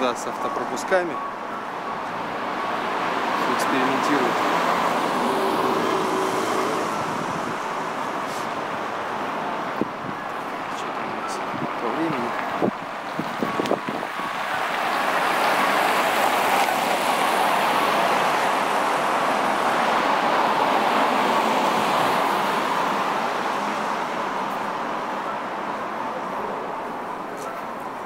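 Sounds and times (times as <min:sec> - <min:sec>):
vehicle passing close by: 0:03.4 - 0:08.6.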